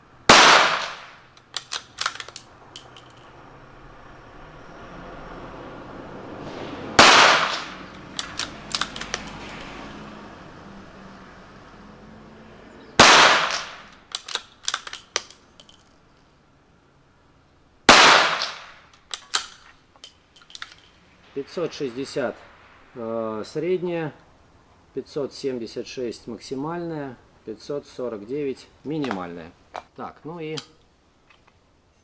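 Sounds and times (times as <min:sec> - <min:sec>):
rifle shots: 0:00.3 - 0:02.4, 0:07.0 - 0:09.3, 0:13.0 - 0:14.9, 0:17.9 - 0:19.5
rifle bolt clicking: 0:01.3 - 0:03.2, 0:07.9 - 0:09.6, 0:13.3 - 0:15.8, 0:18.3 - 0:20.8.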